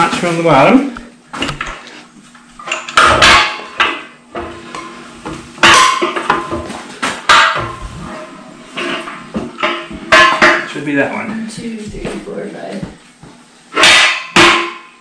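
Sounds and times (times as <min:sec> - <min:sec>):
metal clanks and knocks: 0:02.6 - 0:04.9.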